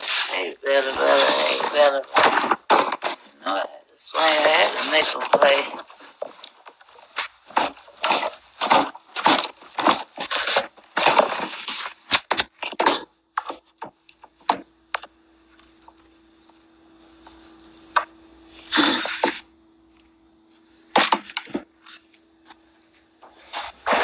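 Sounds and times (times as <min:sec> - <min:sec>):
microphone rubbing on clothing: 0:00.0 - 0:03.4, 0:20.4 - 0:24.0
faint steady hum: 0:00.0 - 0:24.0.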